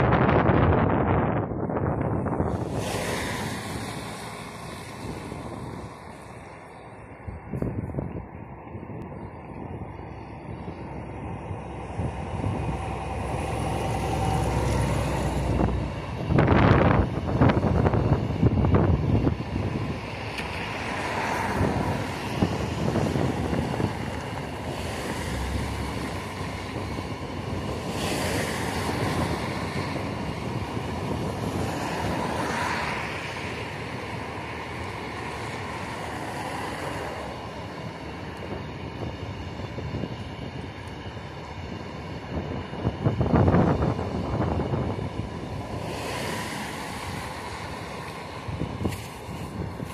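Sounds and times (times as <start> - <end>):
train wheels rumbling on rails: 0.0 - 49.9.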